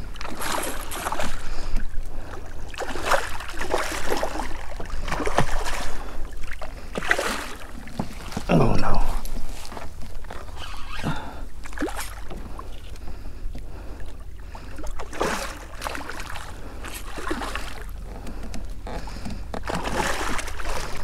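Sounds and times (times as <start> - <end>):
water splashing and sloshing: 0.0 - 21.0
steady low rumble: 8.5 - 10.5.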